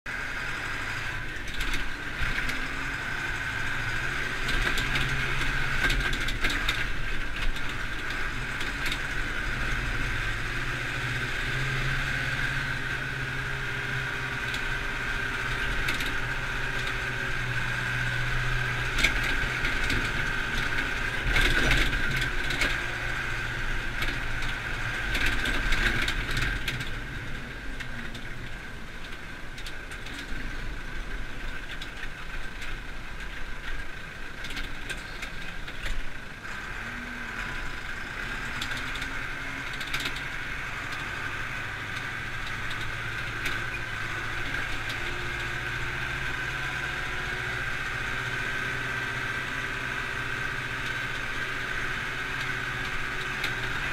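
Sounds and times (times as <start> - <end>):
tractor diesel engine running: 0.1 - 53.9
cab rattles and knocks: 4.3 - 9.9, 15.4 - 30.6.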